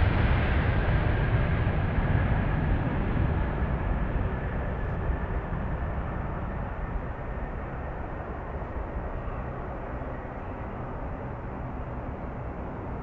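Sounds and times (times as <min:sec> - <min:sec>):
jet engines roaring: 0:00.0 - 0:13.0
faint high whine: 0:03.3 - 0:13.0.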